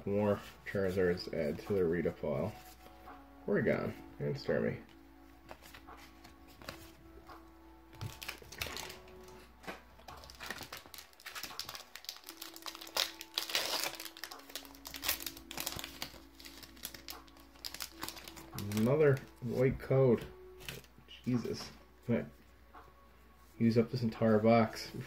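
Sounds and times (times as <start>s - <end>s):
foil wrapper crinkling and tearing: 8.0s - 9.3s, 10.0s - 19.4s.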